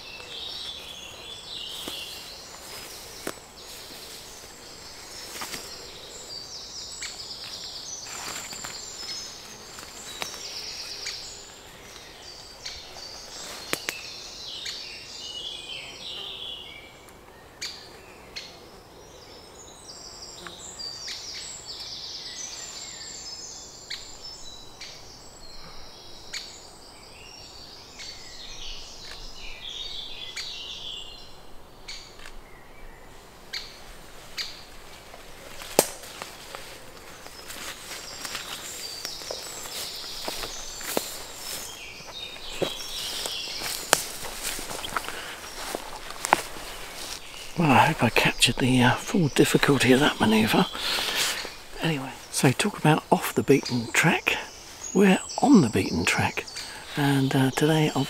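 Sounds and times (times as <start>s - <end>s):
woodpecker chicks chattering: 35.5s - 58.0s.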